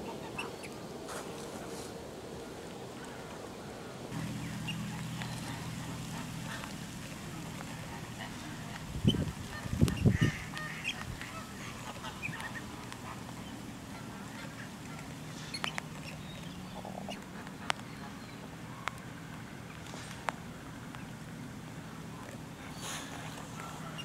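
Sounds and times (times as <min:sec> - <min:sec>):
background of birds: 0:00.0 - 0:24.0
ducks and geese honking: 0:04.2 - 0:19.0, 0:22.5 - 0:24.0.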